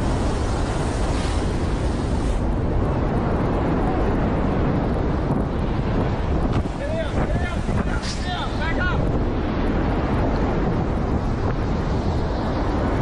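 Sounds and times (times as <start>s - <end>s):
high hiss: 0.0s - 2.4s
bushfire roaring: 0.0s - 13.0s
strong wind: 0.0s - 13.0s
wind rumbling on microphone: 0.0s - 13.0s.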